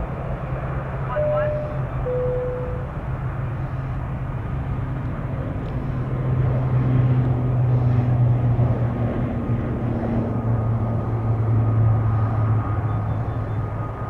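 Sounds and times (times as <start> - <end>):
jet engines rumbling: 0.0 - 14.0.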